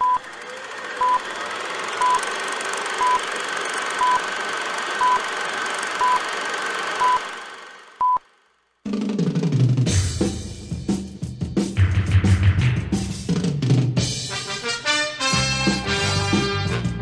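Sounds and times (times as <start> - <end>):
film projector whirring: 0.0 - 8.6.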